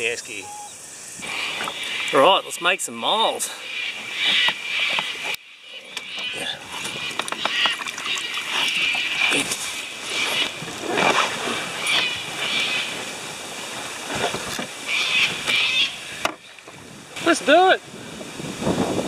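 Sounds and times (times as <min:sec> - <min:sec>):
scuffs and knocks in canoe: 0:06.0 - 0:16.8
light water splashing: 0:06.7 - 0:17.3.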